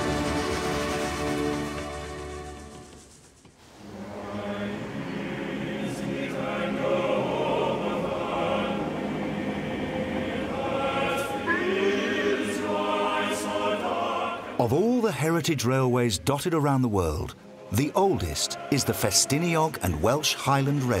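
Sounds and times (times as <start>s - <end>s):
choir singing: 3.8s - 16.1s, 17.2s - 21.0s.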